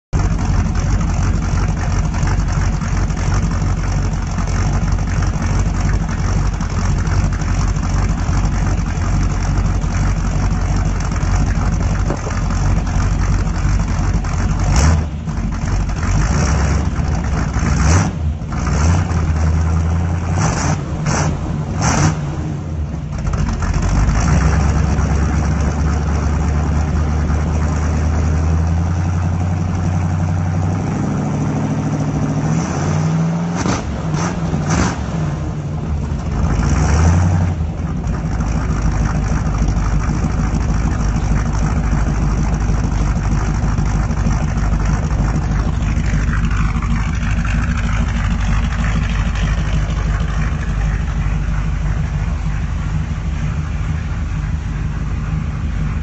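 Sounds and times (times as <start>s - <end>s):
car engine idling and revving: 0.0s - 56.0s.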